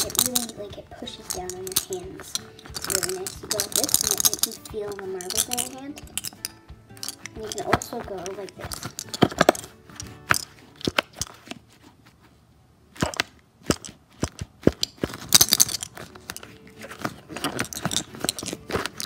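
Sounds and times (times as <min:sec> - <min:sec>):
marbles clicking in a balloon: 0:00.0 - 0:11.4, 0:13.0 - 0:16.6.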